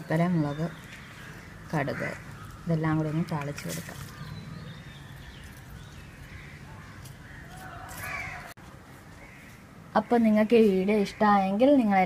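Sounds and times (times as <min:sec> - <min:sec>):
crow cawing: 0:01.2 - 0:03.4, 0:06.3 - 0:08.5.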